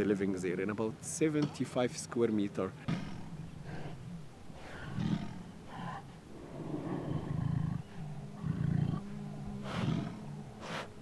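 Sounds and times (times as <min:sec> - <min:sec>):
tiger grumbling calls: 0:02.7 - 0:11.0.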